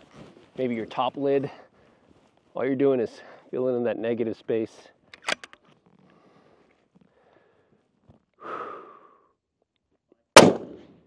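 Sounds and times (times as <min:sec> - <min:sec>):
person breathing out: 0:08.4 - 0:09.3
loud rifle shot: 0:10.4 - 0:11.0.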